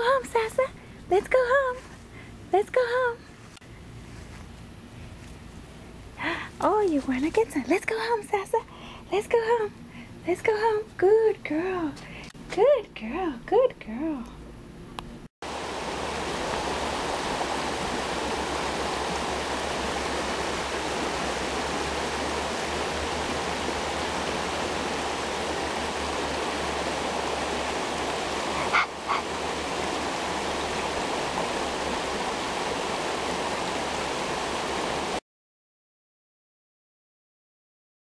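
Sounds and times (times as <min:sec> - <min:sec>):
creek water rushing over stones: 0:15.4 - 0:35.2.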